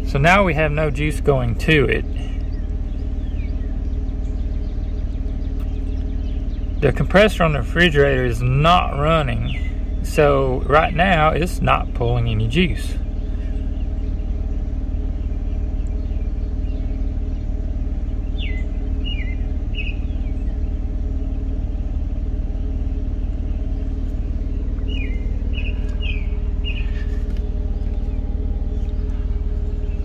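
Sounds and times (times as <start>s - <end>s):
bird chirping: 0.0s - 30.0s
car engine idling: 0.0s - 30.0s.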